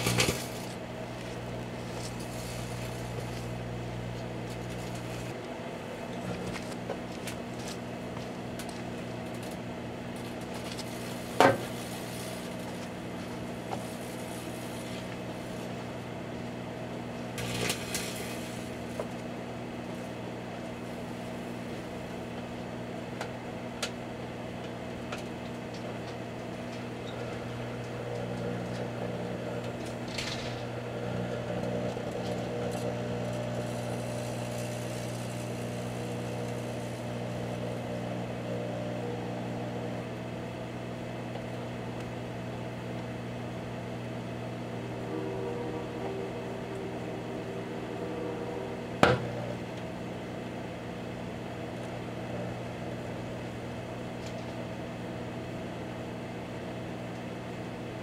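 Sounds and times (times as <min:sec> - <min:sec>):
electrical crackling: 0:00.0 - 0:00.8, 0:10.2 - 0:15.8, 0:17.4 - 0:19.0
microwave oven humming: 0:00.0 - 0:58.0.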